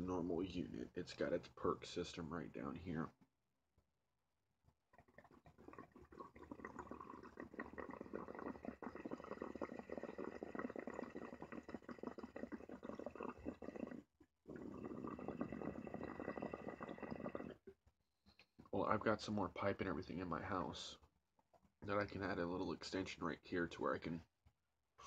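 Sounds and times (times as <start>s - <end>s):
water bubbling in glass pipe: 5.0s - 17.6s.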